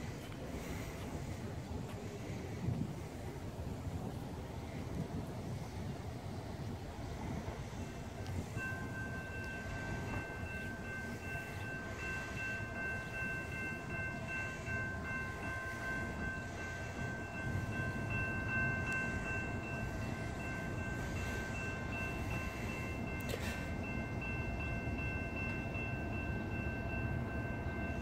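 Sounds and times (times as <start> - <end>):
distant train rumble: 0.0 - 28.0
railroad crossing bell ringing: 6.6 - 28.0.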